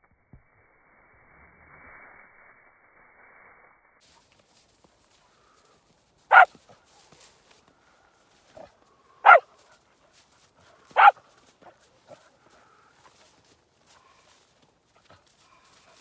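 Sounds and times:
dog barking: 6.3 - 6.6, 8.6 - 9.5, 10.9 - 12.2.

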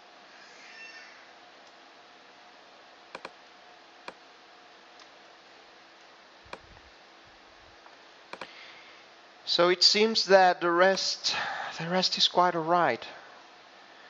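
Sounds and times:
faint room hiss: 0.0 - 14.0
computer mouse clicking: 3.1 - 3.4, 6.5 - 6.7, 8.3 - 8.6.

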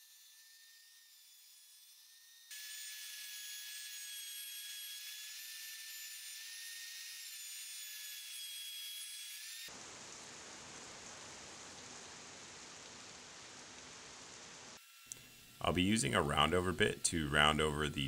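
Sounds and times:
router high whine: 14.9 - 18.0.

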